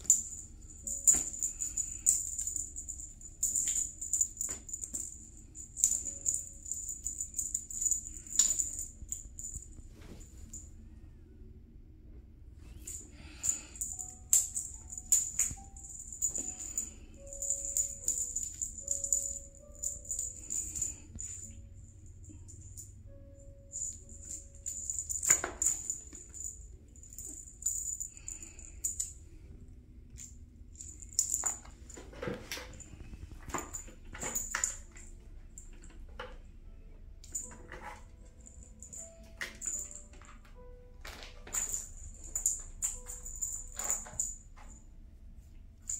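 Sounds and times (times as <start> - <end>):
small jingle bell jingling: 0.0 - 10.7, 12.7 - 29.2, 30.2 - 32.0, 37.2 - 40.6, 41.2 - 44.8.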